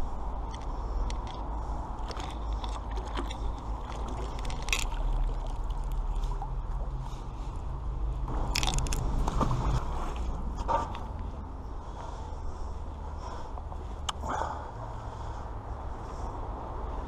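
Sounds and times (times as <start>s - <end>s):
rope hauled from water: 2.0s - 6.4s.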